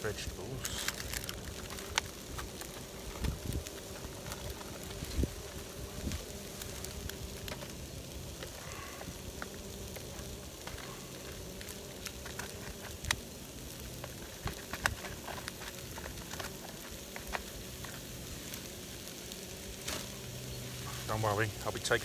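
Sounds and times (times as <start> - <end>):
chicken sizzling in a pan: 0.1 - 14.6.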